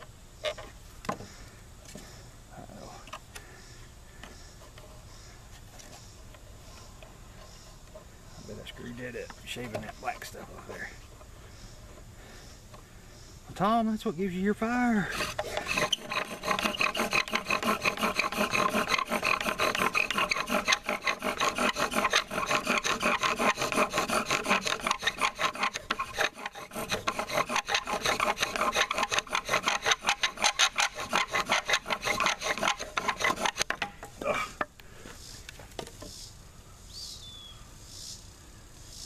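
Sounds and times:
bow drill squeaky grinding: 0:15.0 - 0:34.1.

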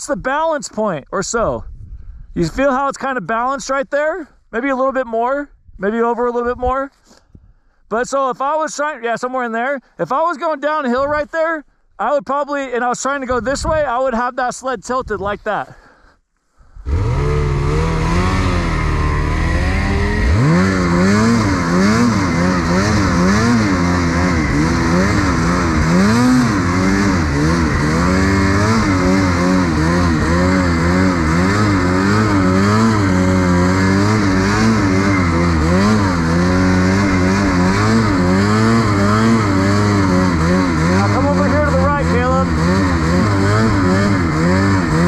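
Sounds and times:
snowmobile engine revving: 0:16.7 - 0:45.0.

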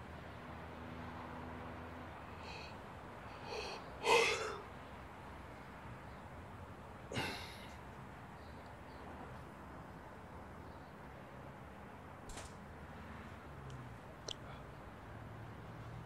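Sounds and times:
man gasping breaths: 0:02.3 - 0:04.7, 0:07.1 - 0:07.8
man sighing: 0:03.4 - 0:04.6, 0:07.1 - 0:07.7.

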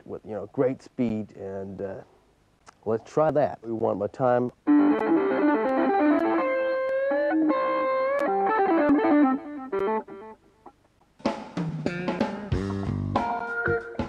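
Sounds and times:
guitar with bass and drums: 0:04.5 - 0:14.0
distorted electric guitar lead: 0:04.7 - 0:10.4, 0:11.9 - 0:14.0.

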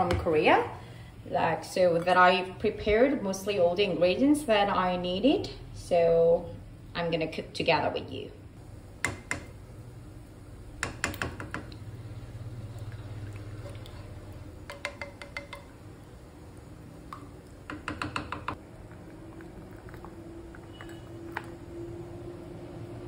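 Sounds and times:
low steady hum: 0:00.0 - 0:23.0
spatula clicking against pot: 0:14.7 - 0:15.7.

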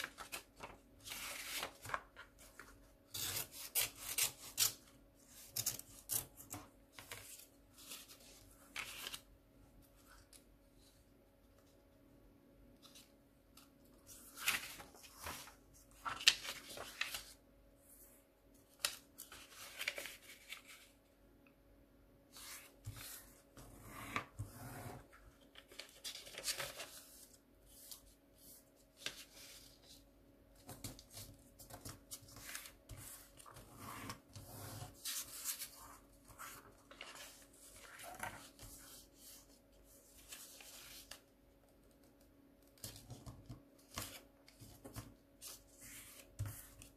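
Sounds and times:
paper crinkling and rustling: 0:00.0 - 0:02.9, 0:12.8 - 0:17.4, 0:18.7 - 0:21.0, 0:25.2 - 0:28.2, 0:28.8 - 0:46.9.

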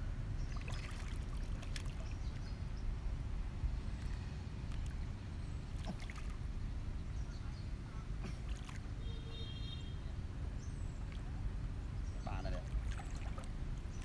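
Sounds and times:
water sloshing around wading person: 0:00.4 - 0:02.6, 0:04.0 - 0:06.5, 0:08.2 - 0:09.2, 0:10.9 - 0:14.0.

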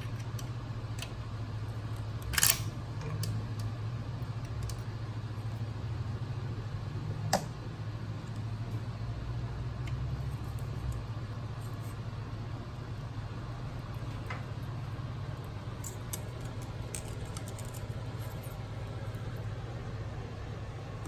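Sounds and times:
low fan or motor hum: 0:00.0 - 0:21.0.

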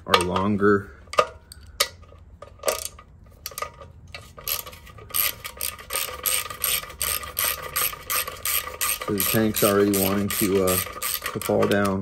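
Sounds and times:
socket ratchet wrench clicking: 0:04.4 - 0:12.0.

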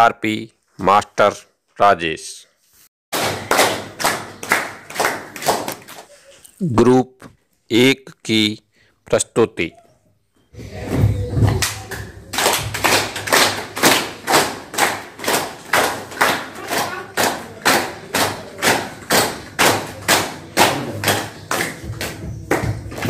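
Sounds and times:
group clapping in unison: 0:03.1 - 0:06.2, 0:11.5 - 0:23.0.

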